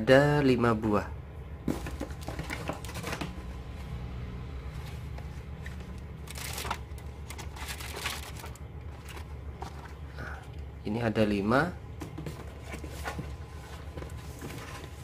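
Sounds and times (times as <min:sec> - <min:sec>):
steady low hum: 0:00.0 - 0:15.0
cardboard boxes scraping and rustling: 0:12.2 - 0:15.0.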